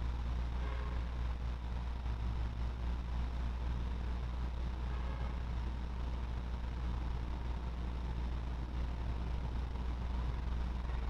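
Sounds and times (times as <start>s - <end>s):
faint thin whine: 0.0s - 11.0s
steady low hum: 0.0s - 11.0s.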